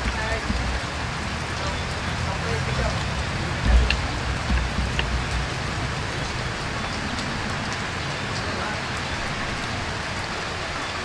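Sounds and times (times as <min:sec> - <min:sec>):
low thumps: 0:00.0 - 0:08.1
steady rushing hiss: 0:00.0 - 0:11.0.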